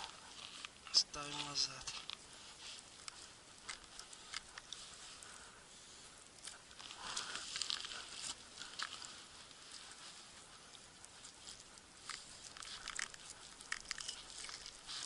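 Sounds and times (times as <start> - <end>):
crunching rustle: 0.0 - 15.0
small clicks of ice and gear: 0.4 - 5.3, 6.3 - 9.2, 10.7 - 15.0.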